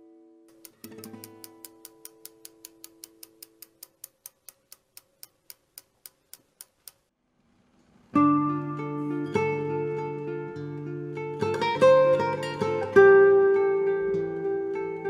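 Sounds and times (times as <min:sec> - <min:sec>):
even ticking: 0:00.5 - 0:07.1.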